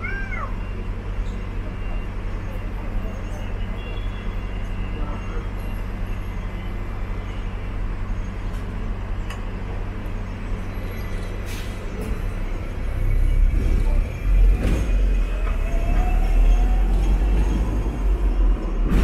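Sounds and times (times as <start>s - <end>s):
tram hum and rumble: 0.0s - 19.0s.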